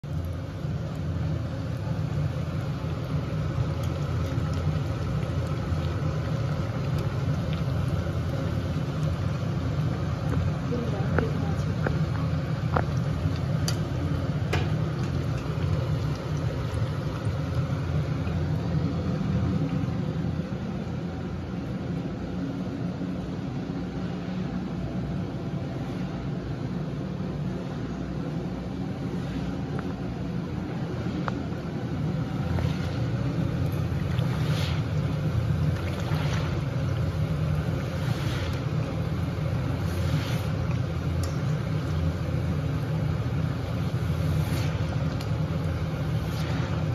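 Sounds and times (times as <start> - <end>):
low running hum: 0.0 - 46.9
batter sizzling in oil: 0.1 - 21.0, 31.7 - 46.9.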